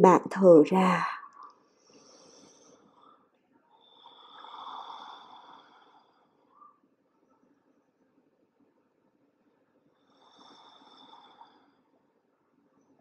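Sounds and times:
person breathing slowly: 0:01.6 - 0:06.7, 0:10.0 - 0:12.0.

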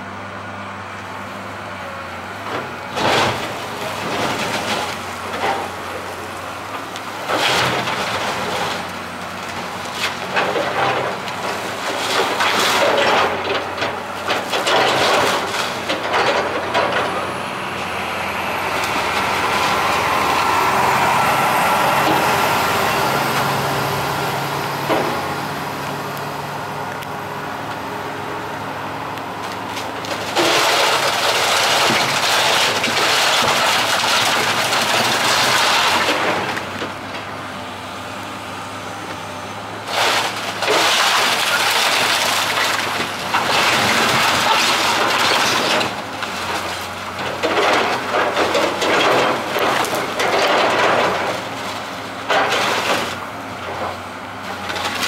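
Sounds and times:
excavator diesel engine running: 0:00.0 - 0:55.0
wood crunching and splintering: 0:02.4 - 0:24.2, 0:29.0 - 0:37.6, 0:39.1 - 0:55.0.

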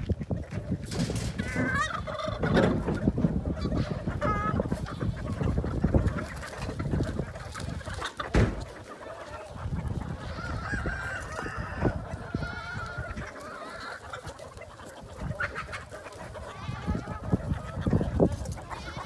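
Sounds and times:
chickens clucking and squawking: 0:00.0 - 0:19.0
rooster crowing: 0:10.4 - 0:12.7.

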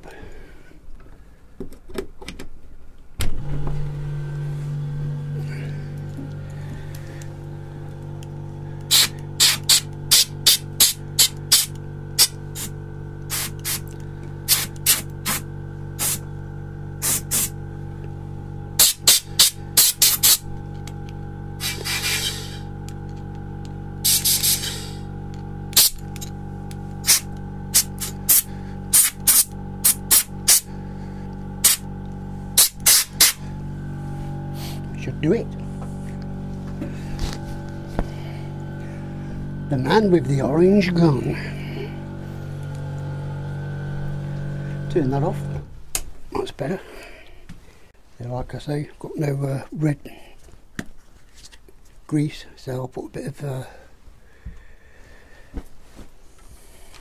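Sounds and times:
air compressor humming: 0:03.2 - 0:47.9
compressed air blasts: 0:04.5 - 0:17.9, 0:18.8 - 0:22.9, 0:24.0 - 0:40.0.

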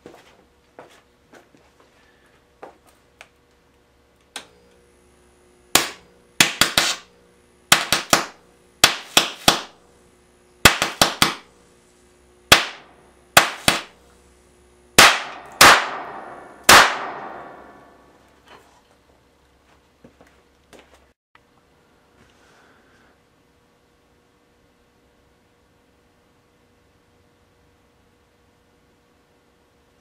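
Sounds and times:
sharp cracking bangs: 0:05.7 - 0:07.1, 0:07.7 - 0:09.8, 0:10.6 - 0:11.5, 0:12.5 - 0:14.0, 0:15.0 - 0:18.1.

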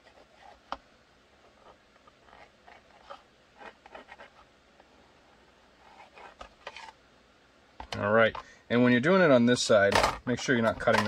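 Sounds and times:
pencil scratching on plastic: 0:00.0 - 0:00.6, 0:01.6 - 0:04.5, 0:05.8 - 0:06.9.

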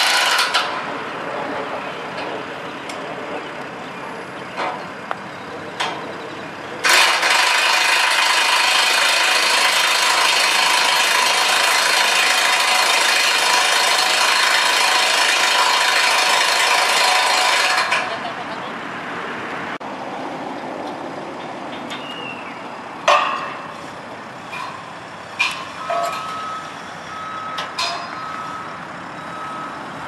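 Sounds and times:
impact wrench running: 0:06.8 - 0:18.0.

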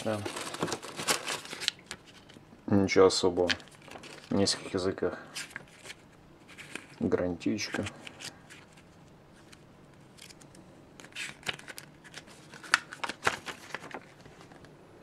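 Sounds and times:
paper pages flicking and rustling: 0:00.0 - 0:02.4, 0:03.4 - 0:09.6, 0:10.2 - 0:14.7.

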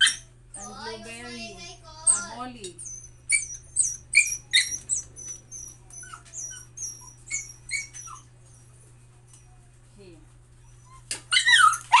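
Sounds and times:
puppy whining and squealing: 0:00.0 - 0:01.0, 0:02.0 - 0:08.7, 0:10.6 - 0:12.0.

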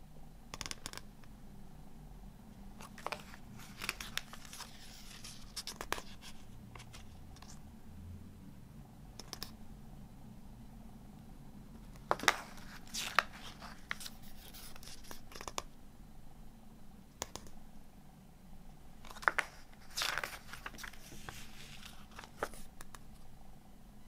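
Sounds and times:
paper pages rustling: 0:02.8 - 0:07.6, 0:12.0 - 0:15.6, 0:19.0 - 0:22.7
paper ticking and snapping: 0:19.0 - 0:23.0.

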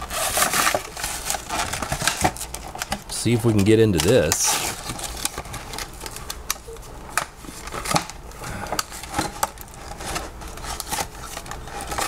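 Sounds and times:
cardboard tearing: 0:00.0 - 0:06.3, 0:08.8 - 0:12.0
plastic blister crinkling: 0:00.0 - 0:12.0.

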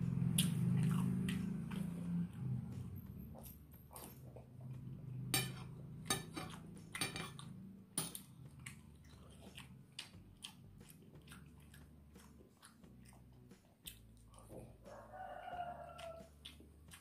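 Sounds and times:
chewing: 0:00.2 - 0:02.8, 0:08.2 - 0:17.0.

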